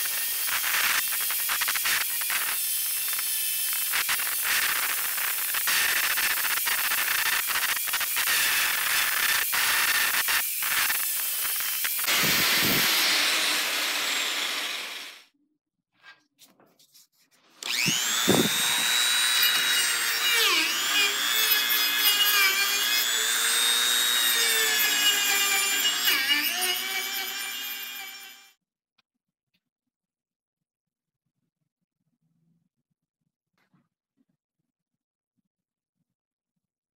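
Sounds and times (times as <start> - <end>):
angle grinder grinding steel: 0.0 - 15.2, 17.6 - 28.5
rotary tool whining: 3.0 - 15.2, 17.6 - 28.5.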